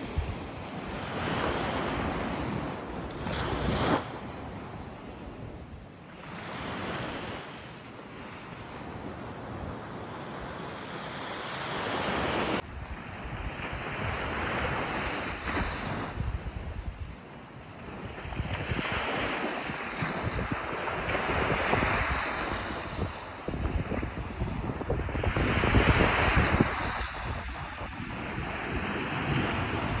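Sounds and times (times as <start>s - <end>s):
wind buffeting microphone: 0.0s - 7.6s, 12.1s - 30.0s
surf breaking on sand: 17.9s - 30.0s.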